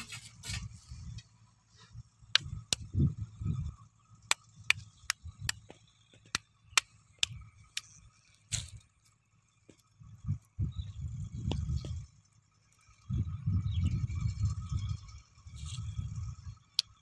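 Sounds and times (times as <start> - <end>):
dull low thumps: 2.0 - 3.8, 10.0 - 12.1
sharp clicks: 4.2 - 8.0.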